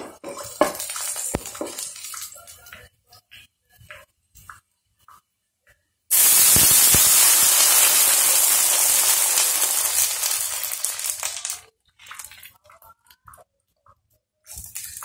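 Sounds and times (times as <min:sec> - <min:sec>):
water sizzling in hot pan: 0:00.0 - 0:02.4, 0:06.1 - 0:12.4.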